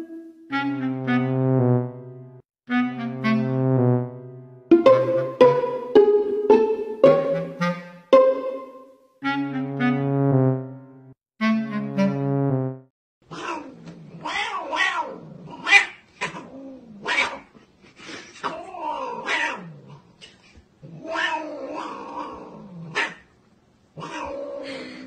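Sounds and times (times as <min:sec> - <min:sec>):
cat yowling: 0:13.3 - 0:17.4, 0:18.4 - 0:19.7, 0:20.9 - 0:23.1, 0:24.0 - 0:24.9.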